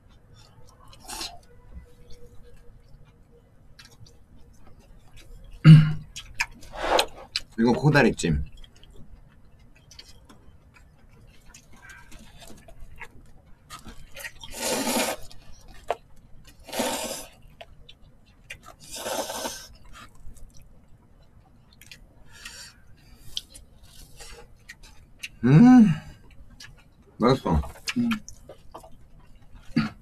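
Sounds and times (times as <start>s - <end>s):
noodles being slurped: 14.4s - 15.3s, 16.6s - 17.3s, 18.8s - 19.7s.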